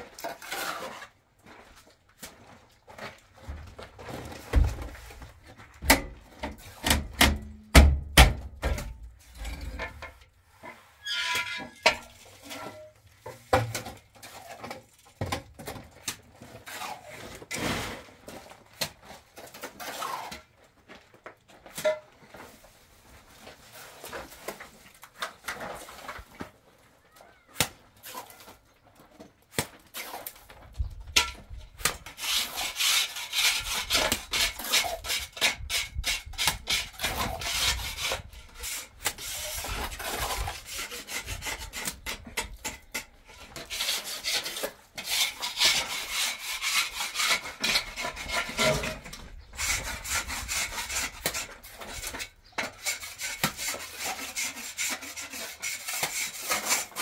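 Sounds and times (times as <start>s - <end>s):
trowel scraping cement plaster: 0.0s - 1.7s, 9.2s - 20.6s, 29.6s - 30.6s, 31.2s - 57.0s.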